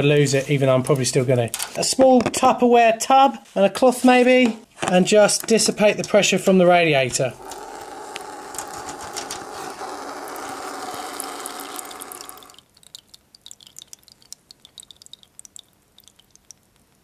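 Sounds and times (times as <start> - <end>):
radiator valve hissing: 7.4 - 12.6
water trickling and dripping into tub: 7.4 - 17.0.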